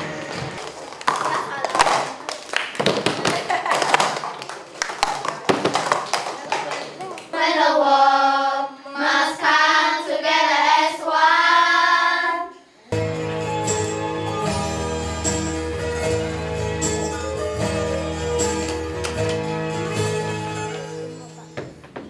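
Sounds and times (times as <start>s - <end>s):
plastic cups knocked on desks: 0.6s - 2.2s, 2.8s - 4.2s, 5.0s - 6.4s
children singing: 7.3s - 12.7s
instrumental music: 13.0s - 21.8s.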